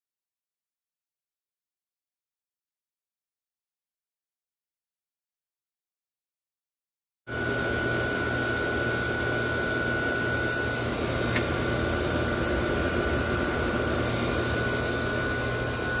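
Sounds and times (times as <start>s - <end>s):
air conditioner running: 7.3s - 16.0s.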